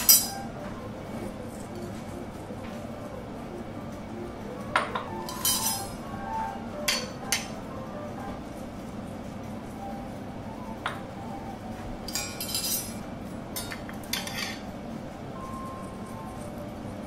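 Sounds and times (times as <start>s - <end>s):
metal clinking on porcelain plate: 4.8s - 5.9s, 12.1s - 13.0s, 13.6s - 14.6s.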